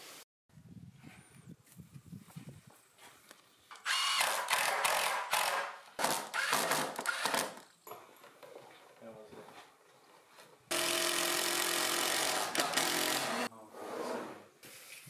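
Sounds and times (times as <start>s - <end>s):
power drill driving fastener into wood: 3.7s - 7.7s, 10.7s - 13.5s.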